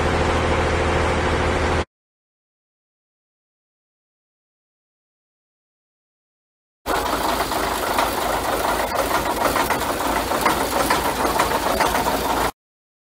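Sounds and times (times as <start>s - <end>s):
diesel truck engine clattering: 6.9s - 12.6s.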